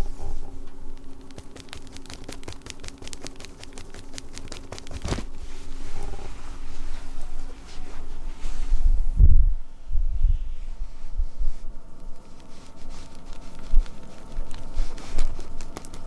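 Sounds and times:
feather toy clicking and rustling: 0:01.0 - 0:05.3, 0:12.0 - 0:16.0
soft scuffling: 0:01.3 - 0:09.1, 0:10.8 - 0:16.0.

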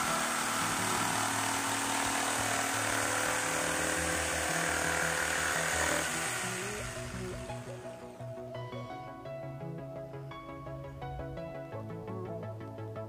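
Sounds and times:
jigsaw cutting plywood: 0:00.0 - 0:08.1.

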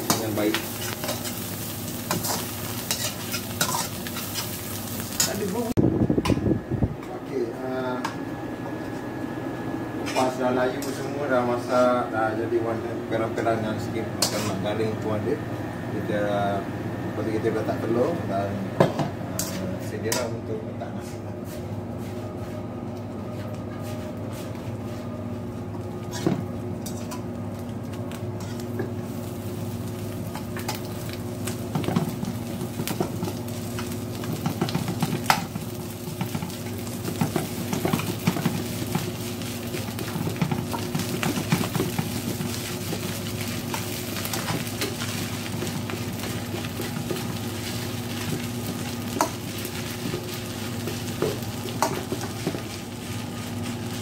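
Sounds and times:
food sizzling in a wok: 0:00.0 - 0:05.8, 0:26.0 - 0:54.0
metal spatula scraping a pan: 0:02.1 - 0:04.6.

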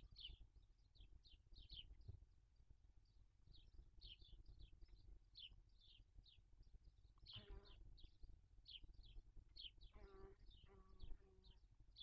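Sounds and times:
lower-pitched bird call: 0:07.3 - 0:07.8.

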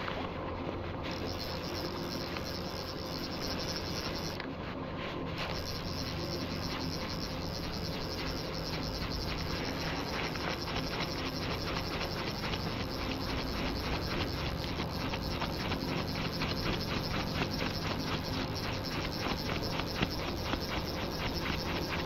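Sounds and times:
fly reel clicking: 0:01.1 - 0:04.4, 0:05.4 - 0:22.0.

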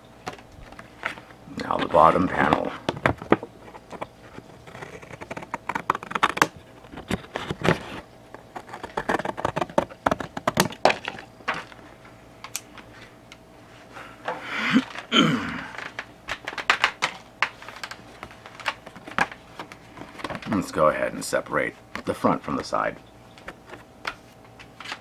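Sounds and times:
cardboard tearing and creaking: 0:01.7 - 0:11.8
cardboard clicking and cracking: 0:01.8 - 0:11.8, 0:14.8 - 0:20.6.

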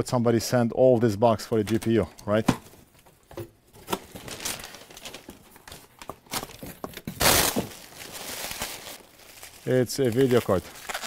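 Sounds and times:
packing paper rustling and crumpling: 0:03.8 - 0:11.0.

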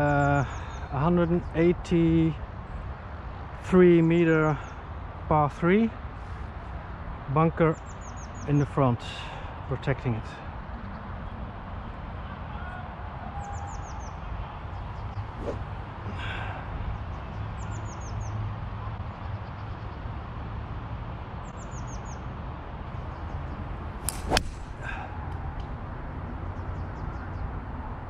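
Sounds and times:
golf club striking ball: 0:23.9 - 0:25.4.

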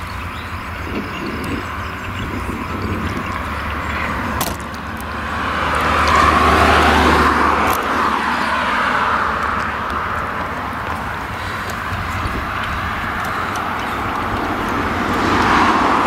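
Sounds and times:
tractor engine running: 0:00.0 - 0:16.0.

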